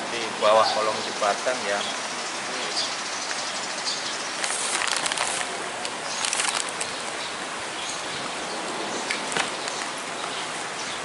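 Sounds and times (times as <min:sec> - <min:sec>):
steady outdoor hiss: 0:00.0 - 0:11.0
clothing and gear rustling: 0:04.4 - 0:07.0.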